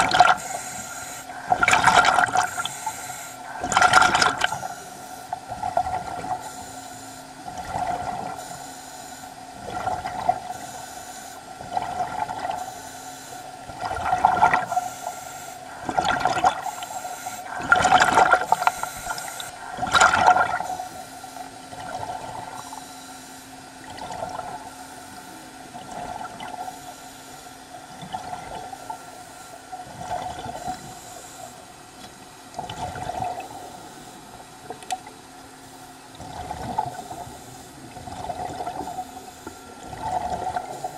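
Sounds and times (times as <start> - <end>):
diver breathing bubbles: 0.0 - 23.4, 35.7 - 40.9
steady hum: 0.0 - 40.9.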